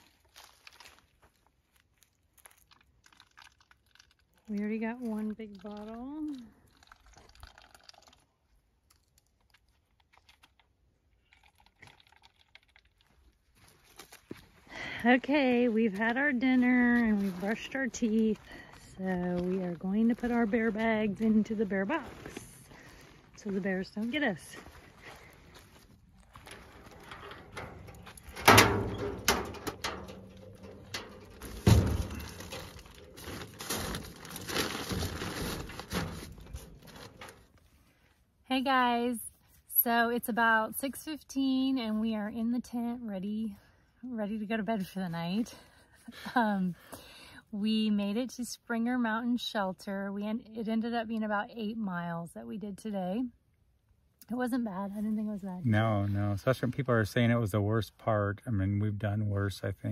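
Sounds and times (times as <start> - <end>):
plastic water pouch crinkling: 0.0 - 14.5, 25.0 - 37.7
bags rustling and bumping: 24.9 - 37.6
heavy thump in metal box: 28.4 - 30.3, 30.9 - 32.6.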